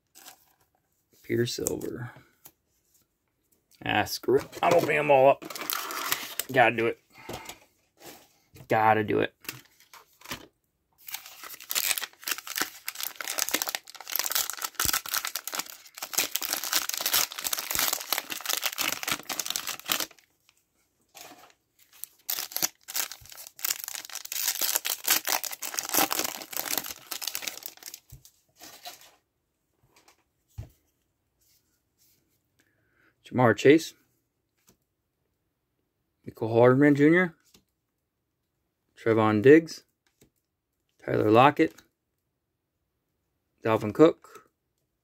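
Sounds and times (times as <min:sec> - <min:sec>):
plastic wrappers crinkling and tearing: 0:04.6 - 0:06.8, 0:09.4 - 0:20.3, 0:21.1 - 0:29.1.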